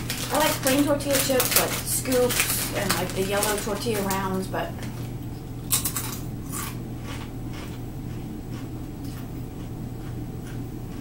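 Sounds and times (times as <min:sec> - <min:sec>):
crunching bites into chip: 0:05.7 - 0:07.8.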